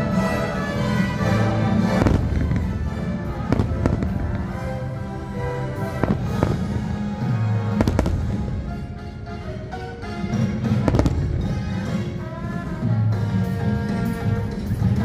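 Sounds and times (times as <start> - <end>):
orchestral music: 0.0 - 15.0
fireworks bursting: 1.4 - 12.8.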